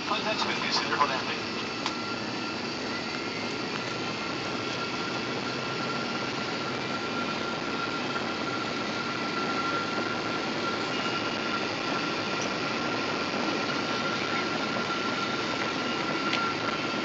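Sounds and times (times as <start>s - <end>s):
jet engine and airflow rush: 0.0s - 17.0s
thin steady whine: 0.0s - 17.0s.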